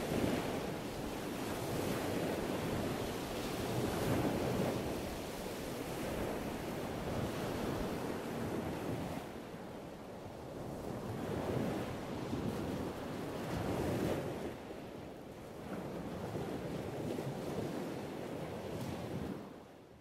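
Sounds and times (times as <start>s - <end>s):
waves washing on shore: 0.0s - 14.9s
wind: 0.0s - 20.0s.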